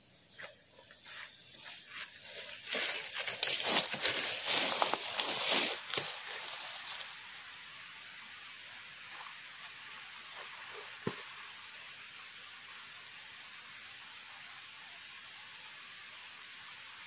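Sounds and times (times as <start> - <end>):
rustling of vegetation: 0.0 - 11.7
faint forest ambience hiss: 0.0 - 17.0
footsteps through grass: 0.3 - 7.3.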